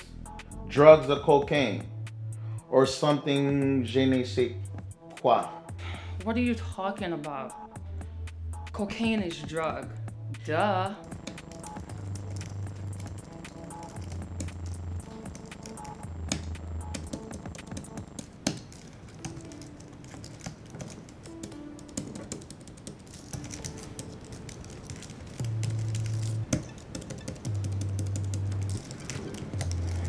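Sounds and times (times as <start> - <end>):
background music with bass notes: 0.0 - 18.2, 25.4 - 30.0
keyboard typing clicks: 11.0 - 30.0.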